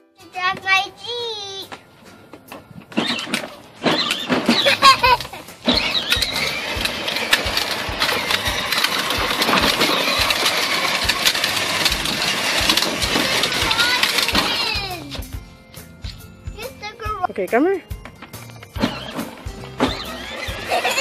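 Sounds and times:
plastic wheels rattling on concrete: 0:02.4 - 0:15.4, 0:17.8 - 0:21.0
electric toy car motors whirring: 0:02.9 - 0:15.4, 0:18.7 - 0:21.0.

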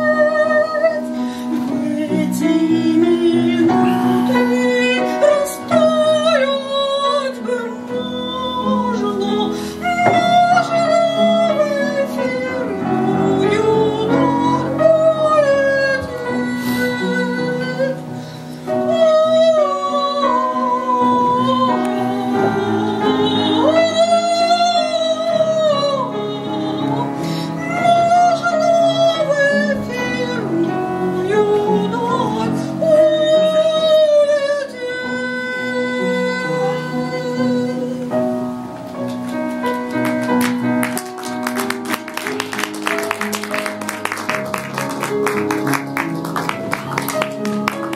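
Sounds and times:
woman singing operatically: 0:00.0 - 0:18.1, 0:18.7 - 0:38.2
upright piano: 0:00.0 - 0:47.9.

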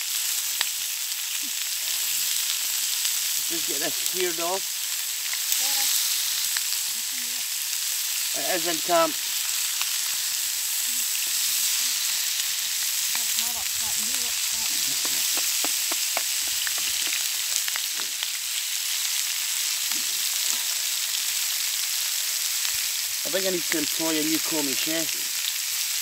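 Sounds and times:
chicken sizzling in a frying pan: 0:00.0 - 0:26.0
sharp clicks and taps: 0:14.8 - 0:18.1.

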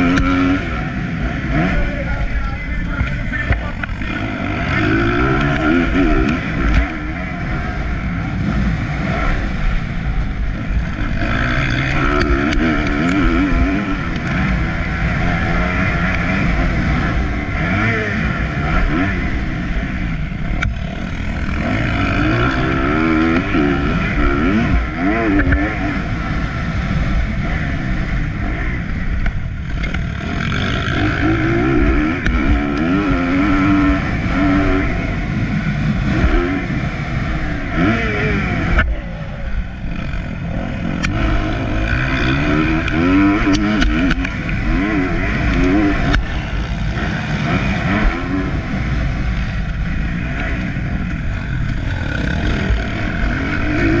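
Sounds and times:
heavy low rumble: 0:00.0 - 0:54.0
motorbike engine revving: 0:00.0 - 0:54.0.

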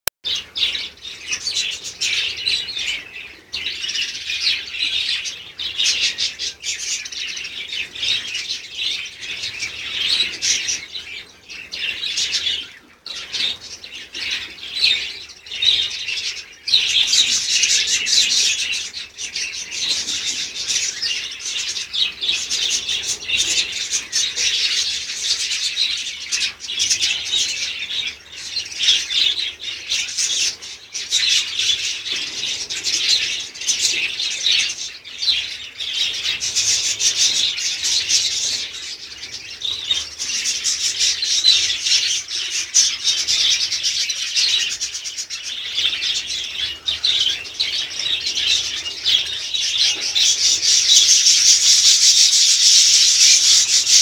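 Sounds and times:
budgerigars chattering and chirping: 0:00.3 - 0:54.0.

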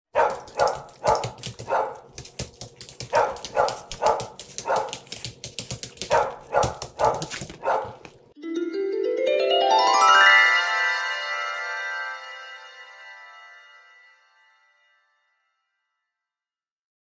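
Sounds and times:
dog barking: 0:00.1 - 0:02.4, 0:03.0 - 0:05.2, 0:05.9 - 0:08.2.

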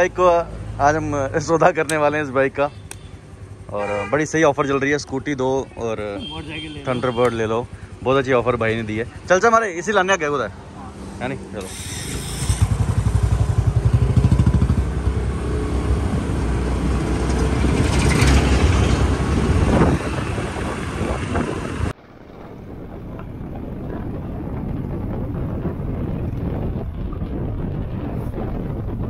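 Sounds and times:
motorcycle cruising: 0:00.0 - 0:29.0
scooter engine accelerating: 0:11.6 - 0:29.0.

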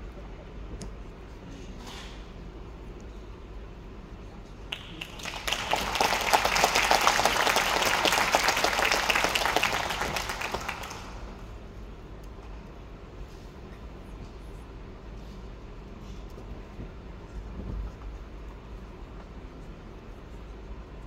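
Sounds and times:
audience applauding: 0:04.7 - 0:11.4.

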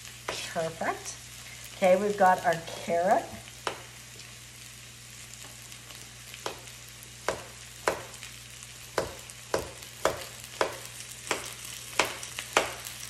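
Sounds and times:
chicken sizzling in a pan: 0:00.0 - 0:13.0
knife chopping on cutting board: 0:06.4 - 0:08.2, 0:08.9 - 0:12.9.

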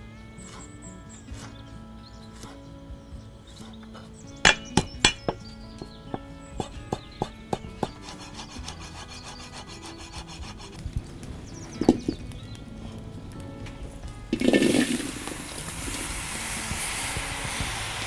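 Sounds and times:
cleaver chopping on wooden block: 0:04.5 - 0:10.8.

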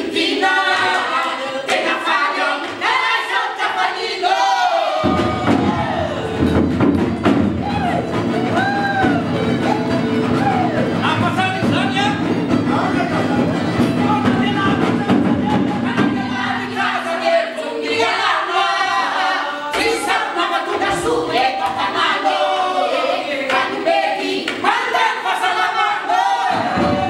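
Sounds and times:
male and female voices singing: 0:00.0 - 0:06.6, 0:12.6 - 0:27.0
drum strokes: 0:04.9 - 0:17.3, 0:26.4 - 0:27.0.

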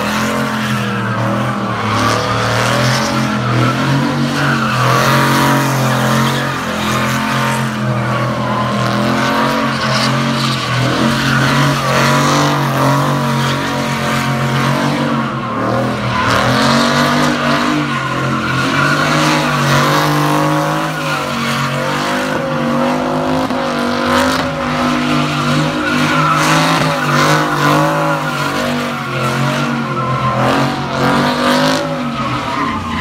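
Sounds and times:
car engine at high revs: 0:00.0 - 0:33.0
tyres squealing: 0:00.2 - 0:33.0.

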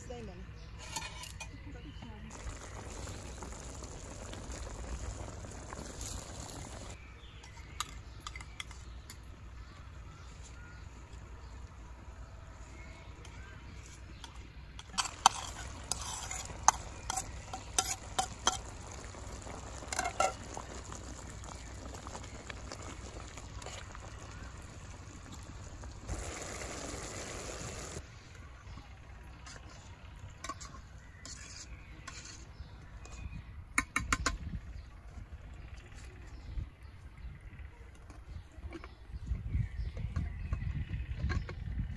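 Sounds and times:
metal spoon scraping pan: 0:00.8 - 0:01.5, 0:14.8 - 0:18.8, 0:30.4 - 0:32.6
stew sizzling: 0:02.3 - 0:07.0, 0:14.9 - 0:28.0.

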